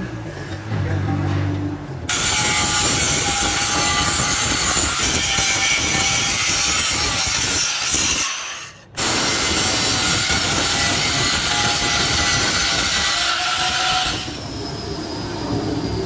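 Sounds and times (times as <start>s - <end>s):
angle grinder grinding metal: 2.1s - 14.4s.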